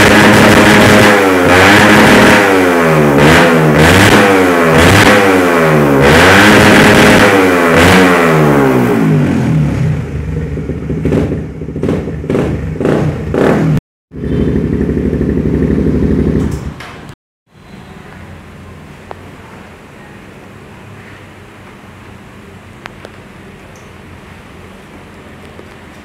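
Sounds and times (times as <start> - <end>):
motorcycle engine revving and idling: 0.0 - 18.4.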